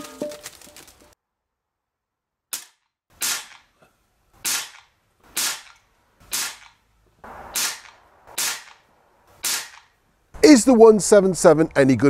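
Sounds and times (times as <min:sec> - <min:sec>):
air pistol shots: 0:02.5 - 0:03.7, 0:04.4 - 0:10.0.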